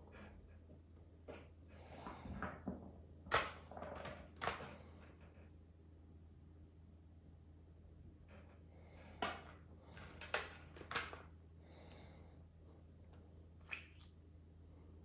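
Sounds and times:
small parts clicking and knocking: 9.2s - 11.3s.

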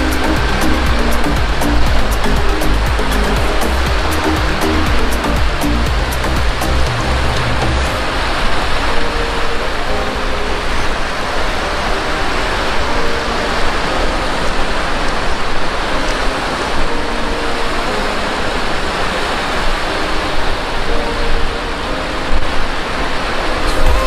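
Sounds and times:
small waves breaking on beach: 7.3s - 24.0s.

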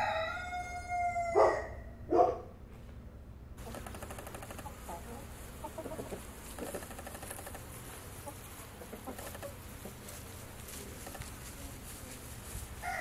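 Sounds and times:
background hiss: 2.4s - 13.0s
chickens clucking: 3.6s - 13.0s.

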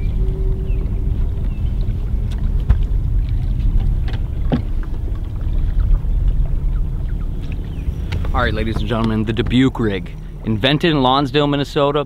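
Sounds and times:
faint steady hum: 0.0s - 12.0s
wind rumbling over microphone: 0.0s - 12.0s
light clicks and knocks: 7.4s - 10.9s.

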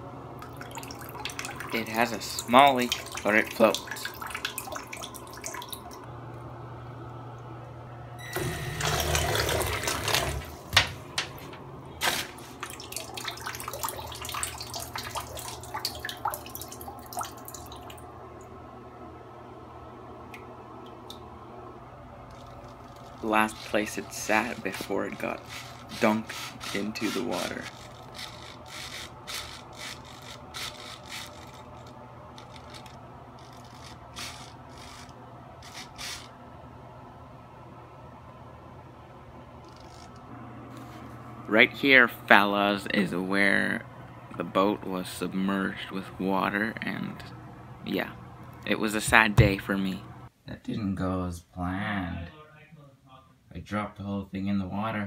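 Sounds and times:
propeller churning water: 0.4s - 6.1s, 12.5s - 18.4s
water splashing and dripping: 0.4s - 6.1s, 12.5s - 18.0s
rubbing and scraping: 22.4s - 36.3s.

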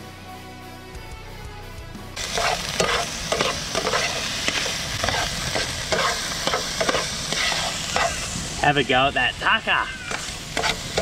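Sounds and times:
guitar and drum music: 0.0s - 8.2s
metal tongs scraping pan: 2.2s - 8.3s, 10.1s - 11.0s
seafood sizzling in oil: 2.2s - 11.0s.

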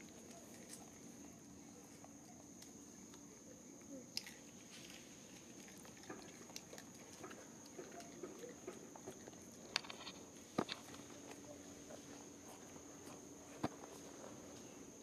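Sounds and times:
monkeys clicking and scuffling: 4.1s - 13.2s.

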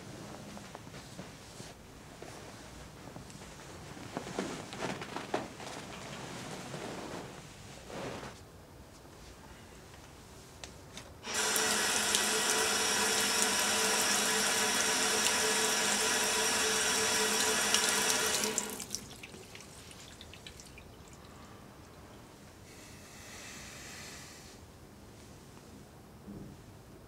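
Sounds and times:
tap water running into sink: 11.3s - 21.2s
water drips and splashes: 17.4s - 22.1s.

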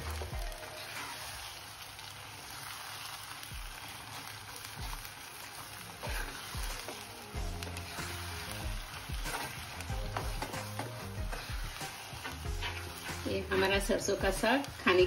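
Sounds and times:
greens sizzling in a pan: 0.0s - 15.0s
spoon stirring: 6.0s - 13.9s.

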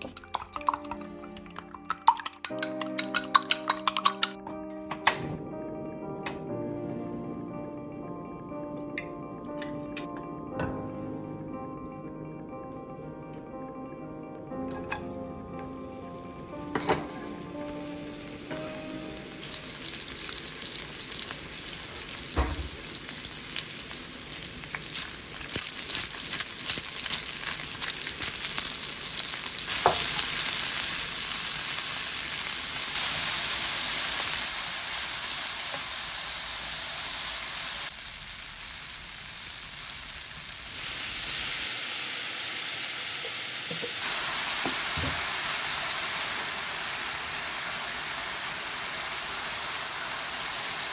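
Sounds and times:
onions sizzling in hot oil: 14.7s - 50.9s.

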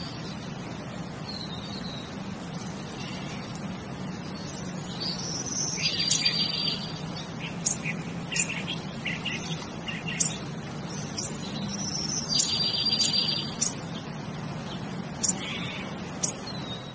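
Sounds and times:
low steady hum: 0.0s - 16.9s.

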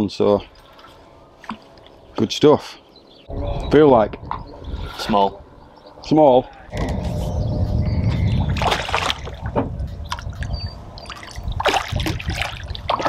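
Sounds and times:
steady low rumble: 3.2s - 13.0s.

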